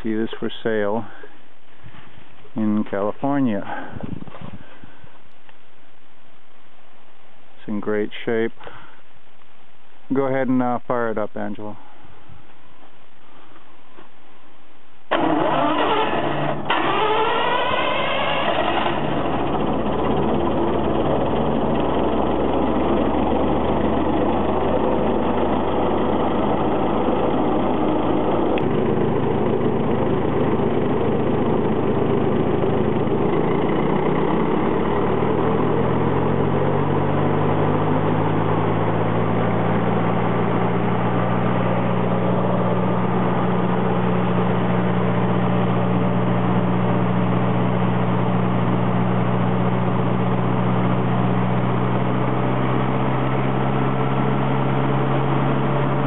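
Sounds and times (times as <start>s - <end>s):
chipper engine running: 15.1s - 56.0s.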